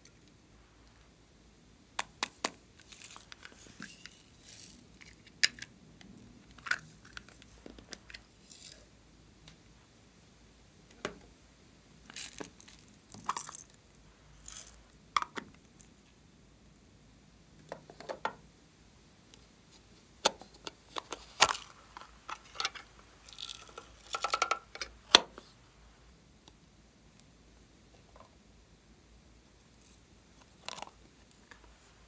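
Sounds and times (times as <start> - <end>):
plastic containers clicking and tapping: 2.0 - 2.6, 17.6 - 18.4, 23.4 - 25.3.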